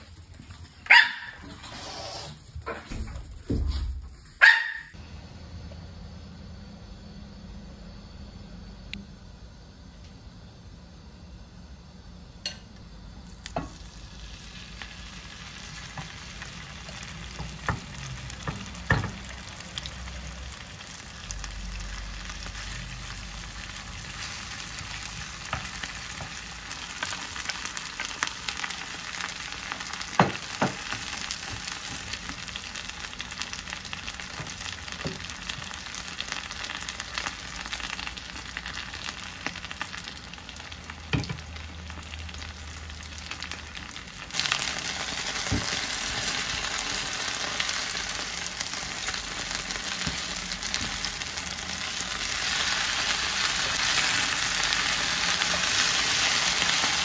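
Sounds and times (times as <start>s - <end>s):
food sizzling in oil: 13.2s - 57.0s.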